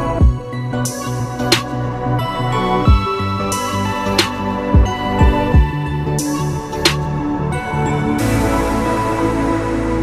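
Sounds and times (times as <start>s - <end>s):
deep kick drums: 0.2s - 0.5s, 2.9s - 3.1s, 4.8s - 5.8s.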